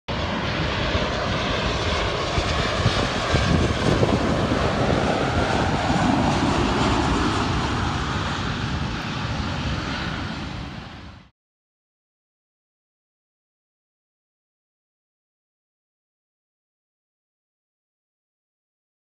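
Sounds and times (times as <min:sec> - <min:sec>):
jet engine noise of landing airliner: 0:00.1 - 0:11.3.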